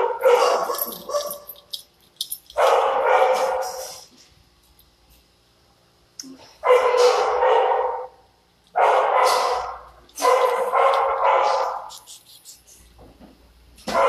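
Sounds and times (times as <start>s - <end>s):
dog barking: 0.0s - 1.5s, 2.6s - 3.9s, 6.6s - 11.9s.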